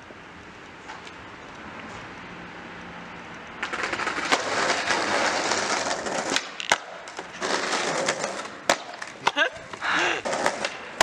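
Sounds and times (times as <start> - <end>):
skateboard wheels rolling on asphalt: 0.0 - 11.0
skateboard clacking on ground: 3.6 - 11.0.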